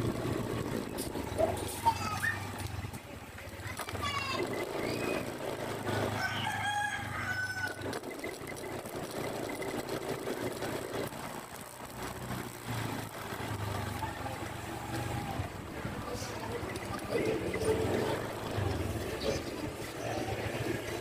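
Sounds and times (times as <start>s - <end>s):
engine humming: 0.0s - 21.0s
rooster crowing: 6.0s - 8.0s.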